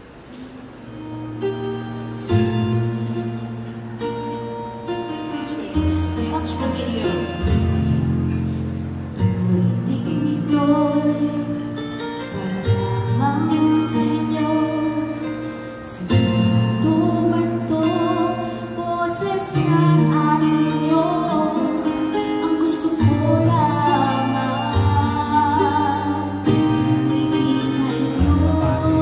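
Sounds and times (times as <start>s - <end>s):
instrumental backing music: 0.0s - 29.0s
woman singing into microphone: 5.1s - 8.4s, 9.2s - 29.0s.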